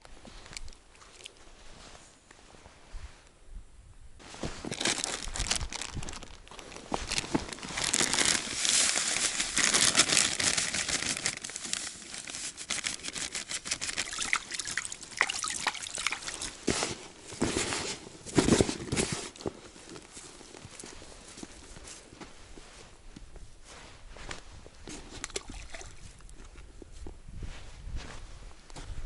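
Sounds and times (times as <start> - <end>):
plastic packet crinkling: 4.7 - 16.7
dry mix trickling into bucket: 13.7 - 16.6, 25.3 - 26.1
hand splashing in water: 14.0 - 16.6, 25.2 - 26.0.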